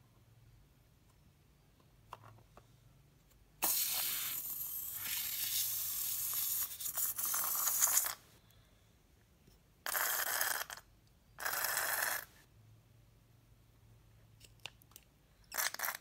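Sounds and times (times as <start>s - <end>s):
air hissing from balloon: 3.6s - 8.2s.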